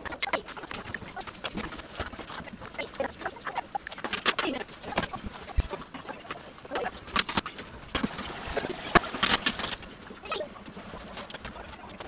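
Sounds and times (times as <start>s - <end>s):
bird-like calls: 0.0s - 7.1s.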